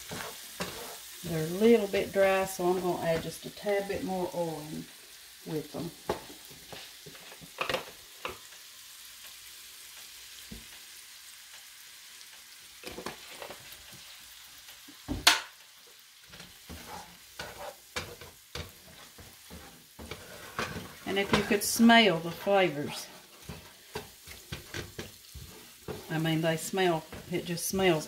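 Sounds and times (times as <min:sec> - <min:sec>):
wooden spatula scraping pan: 0:00.0 - 0:03.4, 0:16.4 - 0:28.0
vegetables sizzling in oil: 0:00.0 - 0:28.0.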